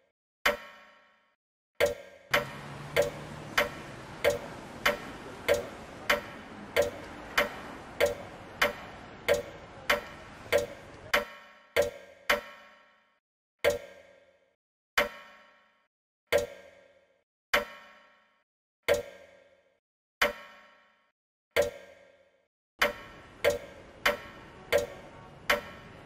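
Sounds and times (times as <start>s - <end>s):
clock ticking loudly: 1.8s - 12.5s, 22.8s - 26.0s
steady background rush: 2.3s - 11.1s.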